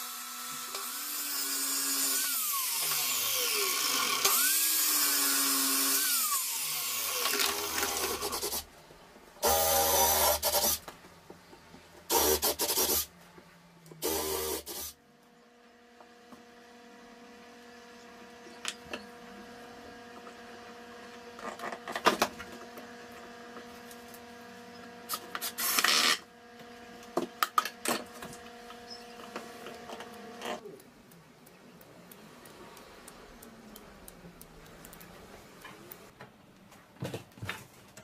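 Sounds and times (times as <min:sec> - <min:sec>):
cordless drill running: 0:00.0 - 0:08.3, 0:09.4 - 0:10.8.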